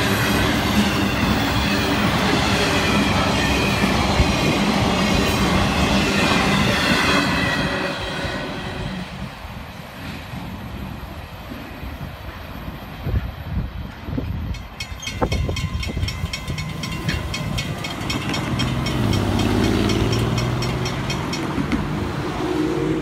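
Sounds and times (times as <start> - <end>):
freight train rumble: 0.0 - 23.0
crossing bell ringing: 14.4 - 22.0
cars driving away: 18.4 - 23.0.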